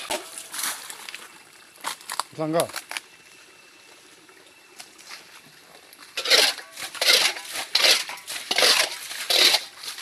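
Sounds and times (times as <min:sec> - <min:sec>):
harsh scraping strokes: 0:06.2 - 0:10.0.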